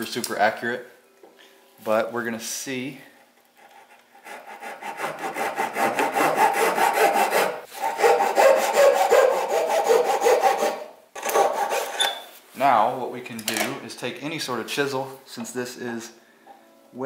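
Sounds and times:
hand saw cutting wood: 0:03.6 - 0:12.1.

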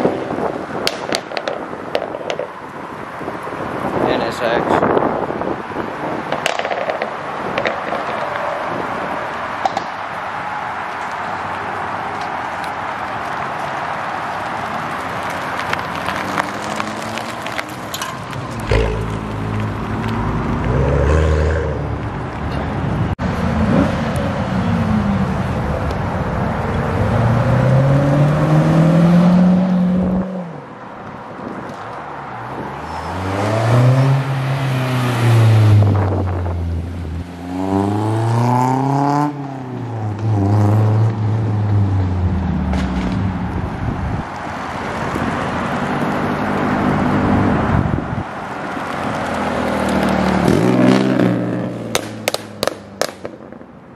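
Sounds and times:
sports car engines accelerating: 0:15.2 - 0:17.8, 0:18.5 - 0:30.7, 0:32.6 - 0:44.1.

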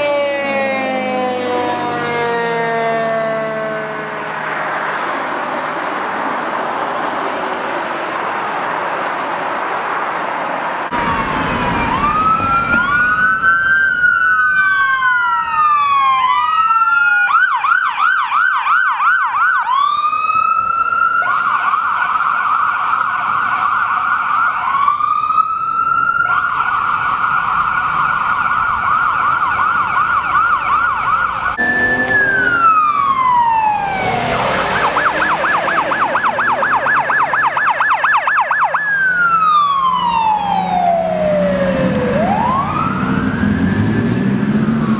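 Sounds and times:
ambulance siren wailing and yelping: 0:00.0 - 0:05.7, 0:10.9 - 0:44.9
police car siren: 0:00.0 - 0:07.8, 0:10.9 - 0:44.9.

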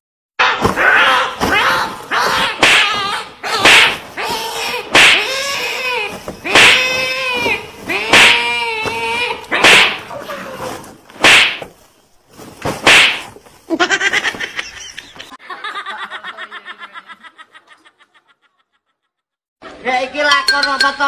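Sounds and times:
sharp whacks: 0:00.4 - 0:10.2, 0:11.1 - 0:11.9, 0:12.6 - 0:13.5
pitched cry: 0:00.4 - 0:11.6
woman laughing heartily: 0:13.7 - 0:19.1.

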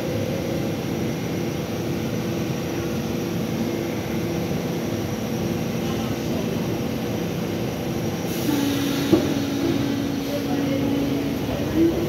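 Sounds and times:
subway car humming: 0:00.0 - 0:12.0
hiss: 0:08.3 - 0:10.4.

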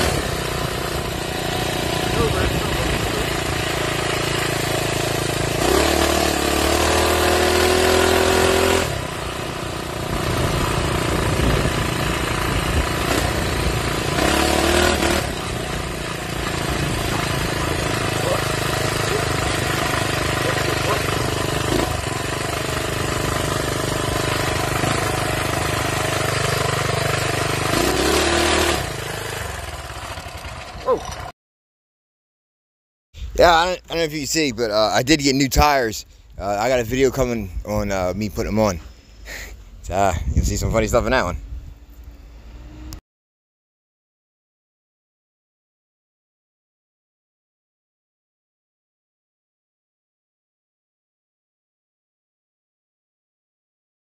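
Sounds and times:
minibike engine revving: 0:00.0 - 0:31.3.

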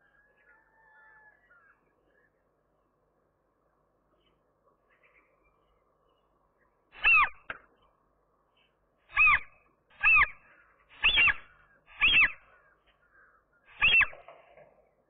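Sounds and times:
gull calling: 0:09.1 - 0:14.3.

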